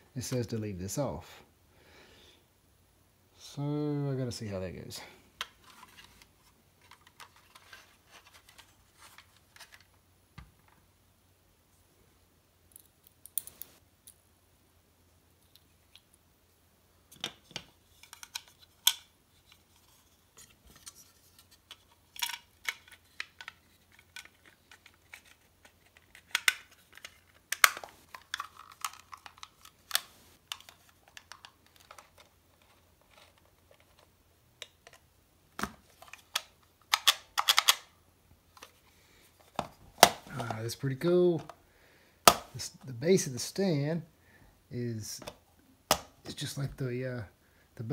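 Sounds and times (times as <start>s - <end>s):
plastic parts snapping together: 25.9s - 32.3s, 35.6s - 37.9s, 42.3s - 42.5s.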